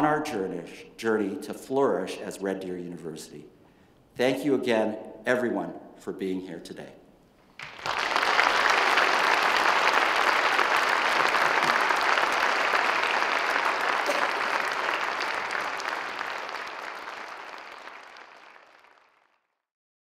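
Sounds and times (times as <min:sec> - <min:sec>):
audience applauding: 0:07.6 - 0:19.4.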